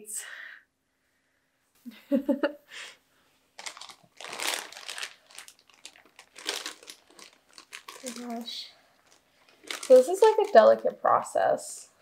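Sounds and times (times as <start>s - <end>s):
plastic bag crinkling: 3.6s - 11.0s.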